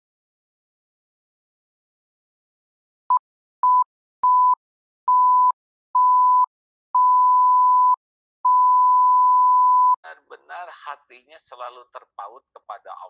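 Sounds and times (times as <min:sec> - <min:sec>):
electronic beep tone: 0:03.6 - 0:10.0.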